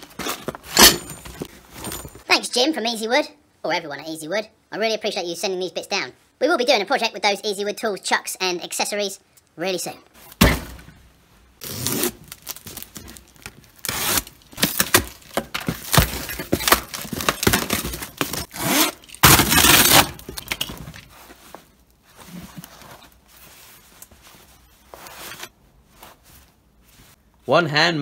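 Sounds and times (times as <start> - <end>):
tape and cardboard ripping: 11.6 - 21.6
soft rustling: 20.8 - 27.5.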